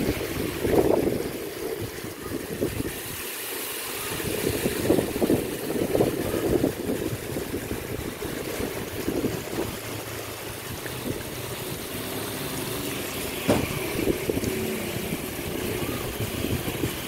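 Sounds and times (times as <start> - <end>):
sauce bubbling and popping: 6.7 - 15.3.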